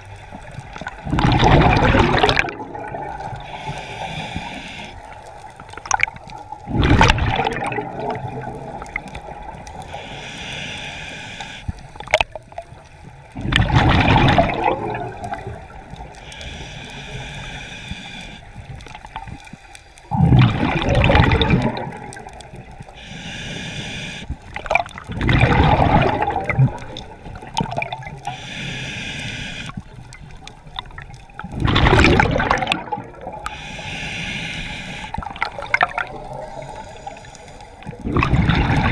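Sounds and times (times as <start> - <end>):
exhaled bubbles rushing: 0.8 - 3.5, 5.6 - 9.6, 13.4 - 16.1, 20.1 - 22.7, 24.5 - 28.2, 30.2 - 33.5, 35.1 - 37.2, 37.8 - 38.9
regulator inhale hiss: 3.3 - 5.5, 9.5 - 12.0, 15.7 - 20.1, 22.8 - 24.5, 28.2 - 29.9, 33.4 - 35.4, 36.2 - 38.0.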